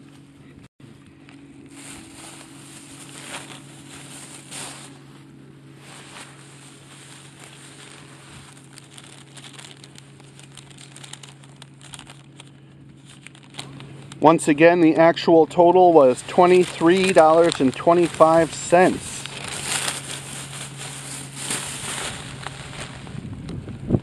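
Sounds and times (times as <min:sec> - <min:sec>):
steady low hum: 0:00.0 - 0:24.0
microphone handling noise: 0:17.0 - 0:24.0
wind gusts: 0:22.3 - 0:24.0.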